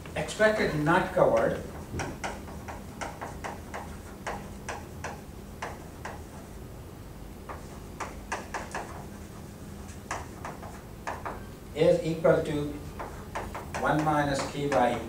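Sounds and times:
chalk tapping on blackboard: 0:00.7 - 0:06.7, 0:07.4 - 0:11.6, 0:12.8 - 0:15.0.

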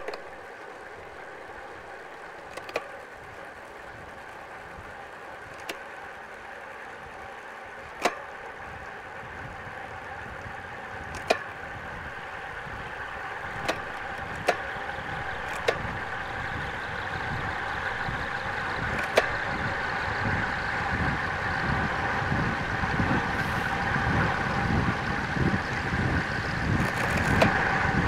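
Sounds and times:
bike tyre hum: 0:00.0 - 0:28.0
rushing wind: 0:00.0 - 0:28.0
sharp clicks over bumps: 0:00.0 - 0:28.0
wind buffeting microphone: 0:08.6 - 0:28.0.

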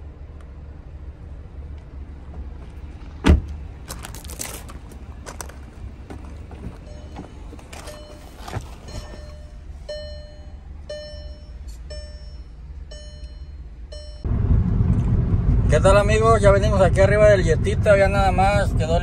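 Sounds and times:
car door opening: 0:02.3 - 0:09.6
car warning chime dinging: 0:06.8 - 0:14.3.

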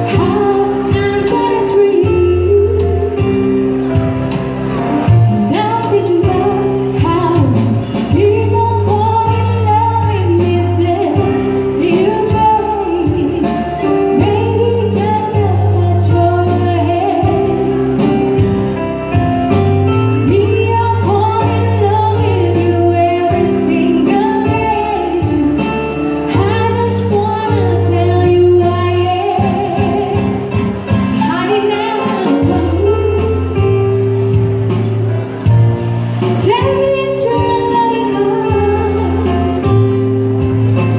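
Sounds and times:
woman singing into microphone: 0:00.0 - 0:04.1, 0:05.0 - 0:19.3, 0:19.9 - 0:34.5, 0:36.2 - 0:40.9
arranger keyboard with drum beat: 0:29.4 - 0:40.9.

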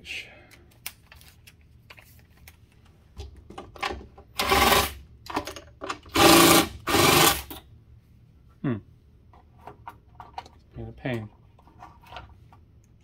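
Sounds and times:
cordless drill running: 0:04.4 - 0:05.0, 0:06.1 - 0:07.5.

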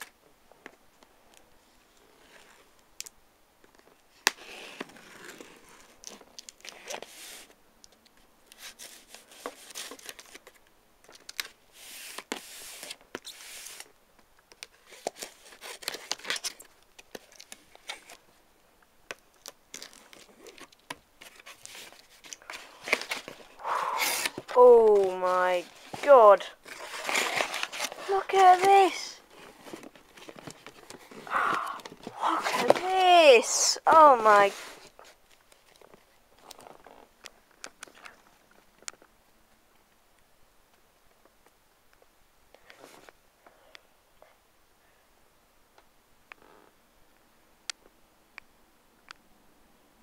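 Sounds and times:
packing tape tearing: 0:14.5 - 0:18.2, 0:19.3 - 0:33.0
cardboard flaps scraping: 0:21.2 - 0:28.7, 0:29.3 - 0:33.2.

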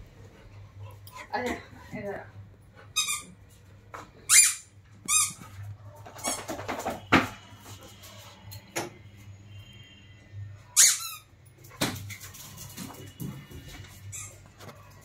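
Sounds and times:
high-pitched squeaks: 0:14.0 - 0:14.8.

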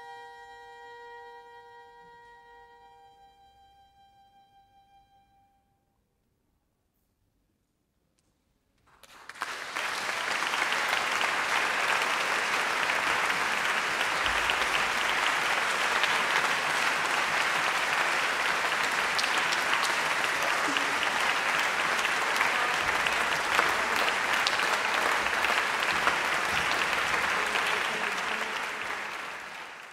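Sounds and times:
audience applauding: 0:08.9 - 0:29.9.

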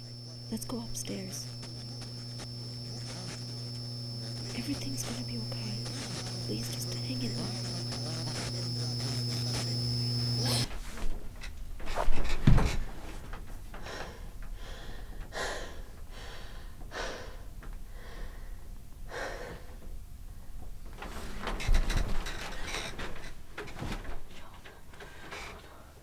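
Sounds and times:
woman breathing heavily with gasps: 0:13.7 - 0:19.8.

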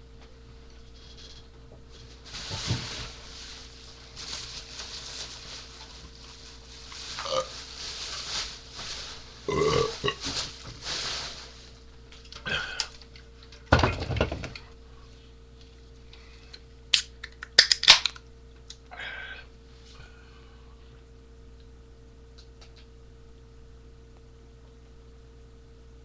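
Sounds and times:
man belching: 0:09.5 - 0:10.2.

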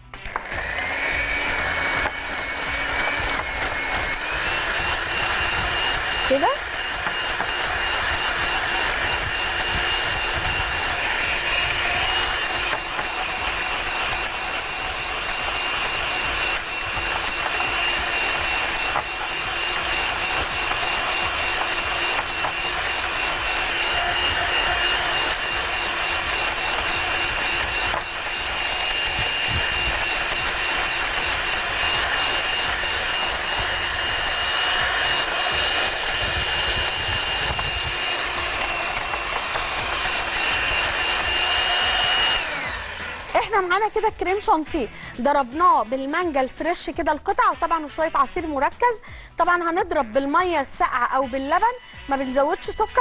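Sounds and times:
electric hand mixer whine: 0:00.0 - 0:46.0, 0:47.3 - 0:53.0.

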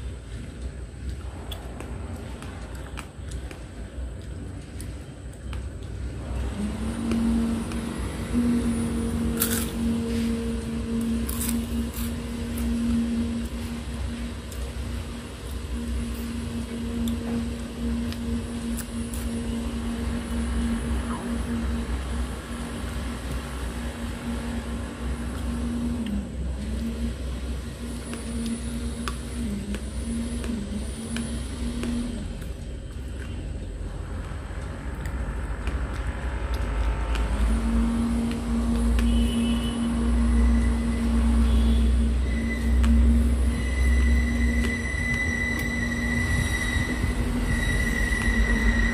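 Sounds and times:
low mechanical hum: 0:00.0 - 0:48.9
chip crunching: 0:09.2 - 0:10.3, 0:11.0 - 0:12.8.

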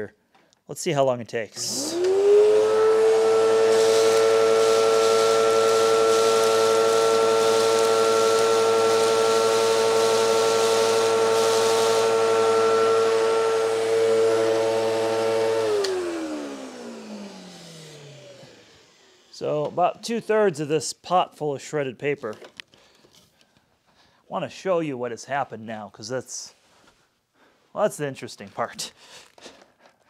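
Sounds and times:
vacuum cleaner motor whining: 0:01.6 - 0:20.5.

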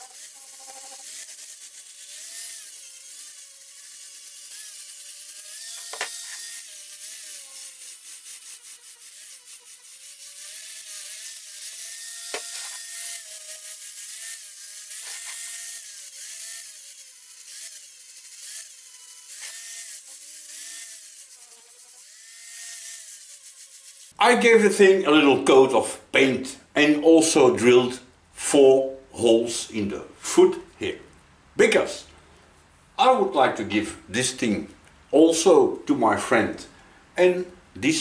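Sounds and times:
angle grinder grinding steel: 0:00.0 - 0:24.2.

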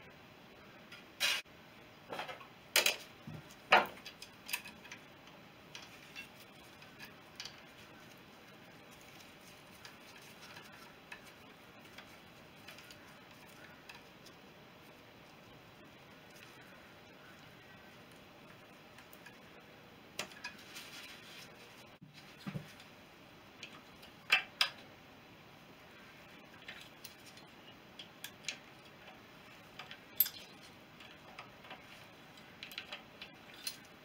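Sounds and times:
small metal parts clicking: 0:03.8 - 0:05.1, 0:26.6 - 0:34.0.

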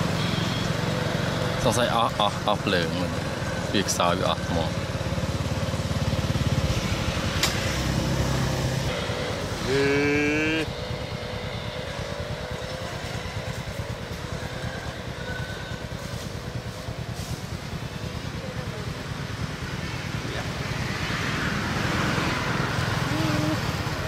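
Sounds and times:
small engine idling: 0:00.0 - 0:24.0
pitched tone: 0:08.9 - 0:10.8.

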